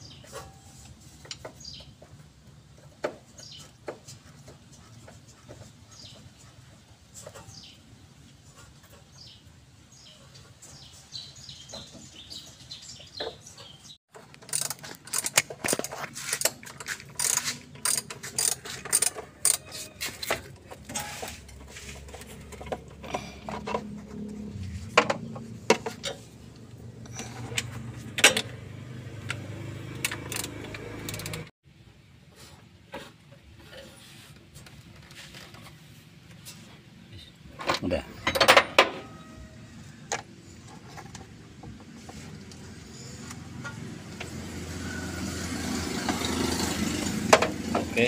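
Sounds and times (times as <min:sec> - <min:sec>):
metal tools clinking: 0:14.1 - 0:23.8
ratchet wrench clicking: 0:14.3 - 0:19.6, 0:30.0 - 0:31.5.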